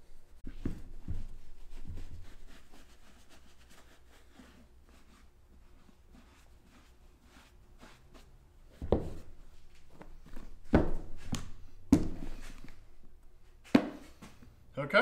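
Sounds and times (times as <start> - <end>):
boots thunking on wooden bench: 8.8 - 9.3, 9.9 - 12.4.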